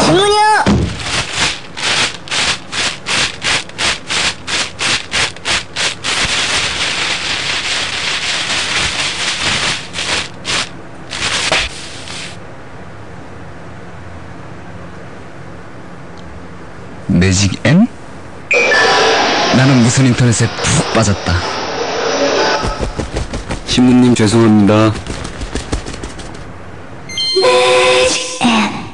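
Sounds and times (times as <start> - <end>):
rasping rubbing strokes: 1.1 - 12.4.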